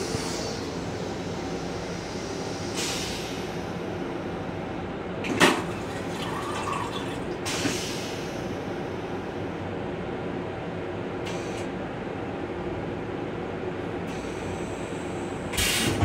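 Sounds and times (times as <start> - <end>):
moving train rumble: 0.0 - 16.0
toilet flushing: 5.3 - 7.8.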